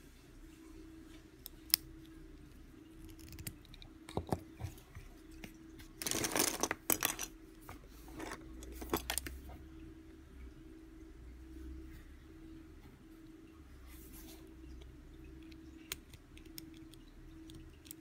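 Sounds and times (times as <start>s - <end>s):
pencils clattering together: 6.0s - 7.3s.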